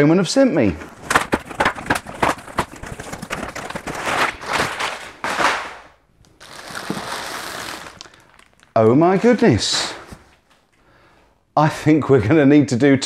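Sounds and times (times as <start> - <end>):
cardboard rustling: 0.6 - 10.6
tape and cardboard tearing: 0.8 - 8.6.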